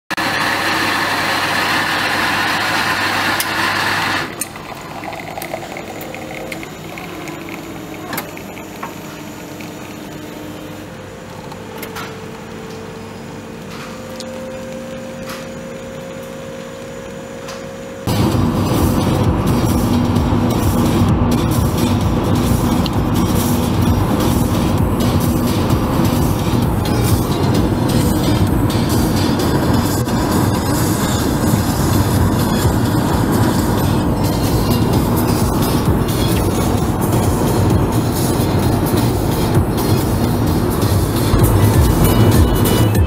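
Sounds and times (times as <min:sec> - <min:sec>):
coffee machine humming: 0:00.1 - 0:43.0
coffee machine grinding: 0:00.2 - 0:11.1
loud dense sound: 0:18.1 - 0:43.0.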